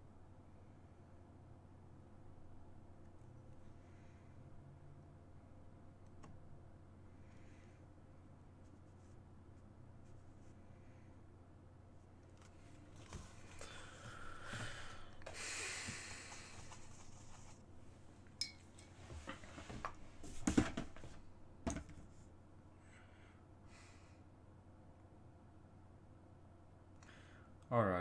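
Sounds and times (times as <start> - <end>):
paintbrush scrubbing and scraping: 16.3 - 17.6.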